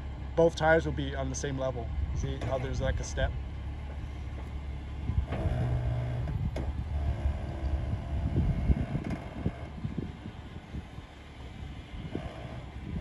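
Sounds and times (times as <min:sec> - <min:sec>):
engine running low: 0:00.0 - 0:13.0.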